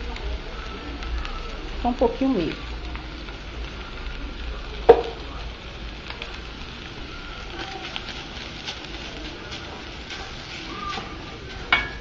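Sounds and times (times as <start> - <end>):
chicken sizzling in a metal pan: 0.0 - 12.0
spatula clanking against pan: 10.1 - 12.0.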